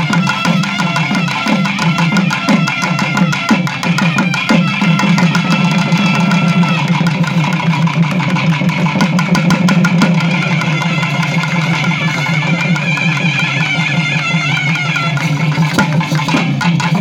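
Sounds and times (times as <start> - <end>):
rapid drumbeats: 0.0 - 17.0
droning instrument: 4.0 - 8.0.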